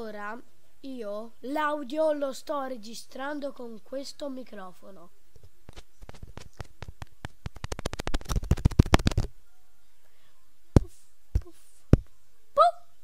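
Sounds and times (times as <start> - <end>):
fingers tapping microphone: 5.4 - 9.3, 10.8 - 12.1.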